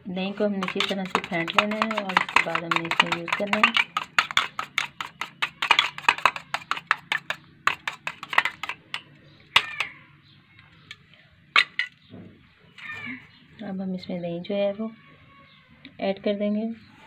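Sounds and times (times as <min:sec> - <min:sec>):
metal spoon whisking in bowl: 0:00.2 - 0:09.9.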